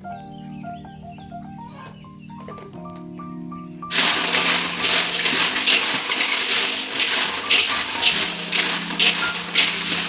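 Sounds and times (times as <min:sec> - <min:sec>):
small hard pieces rattling in metal basin: 0:03.9 - 0:10.0.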